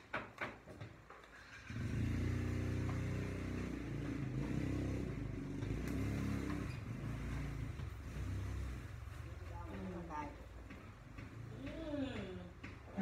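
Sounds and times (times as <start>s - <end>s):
engine running at low speed: 1.6s - 9.1s.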